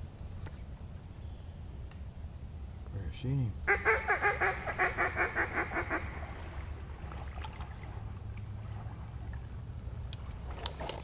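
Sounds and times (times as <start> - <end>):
low steady rumble: 0.0 - 11.0
duck quacks: 3.7 - 6.1.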